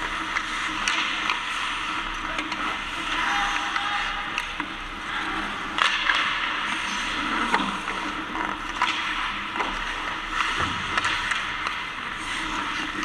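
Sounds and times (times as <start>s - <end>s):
hockey sticks and puck clacking: 0.0s - 13.0s
skates scraping on ice: 0.0s - 13.0s.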